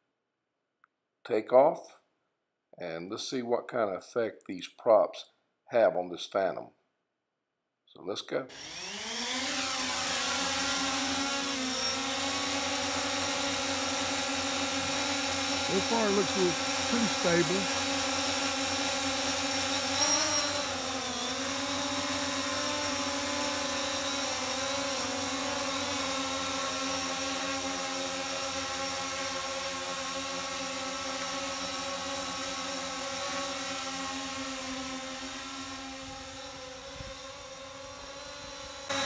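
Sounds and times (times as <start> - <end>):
drone propellers humming: 14.8 - 18.2.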